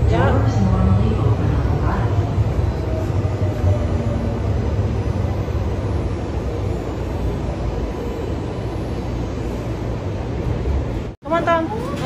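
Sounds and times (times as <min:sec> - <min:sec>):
light-rail car rumbling on track: 0:00.0 - 0:12.0.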